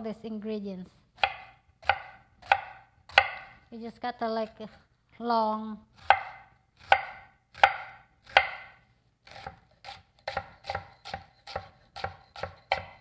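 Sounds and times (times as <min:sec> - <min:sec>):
knife chopping onion on wooden board: 0:01.2 - 0:03.6, 0:06.0 - 0:13.0.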